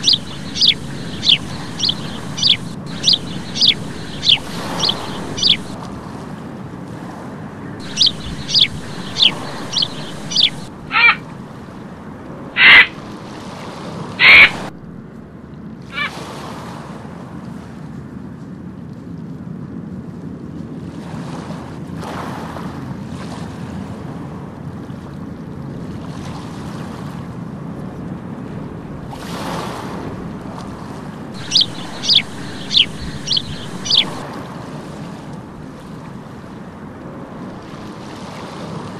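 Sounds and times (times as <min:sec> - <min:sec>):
gulls calling: 0:00.0 - 0:05.8, 0:07.8 - 0:11.6, 0:12.5 - 0:13.1, 0:14.2 - 0:14.8, 0:15.9 - 0:16.2, 0:31.4 - 0:34.2
surf washing: 0:00.0 - 0:15.0, 0:28.8 - 0:38.9.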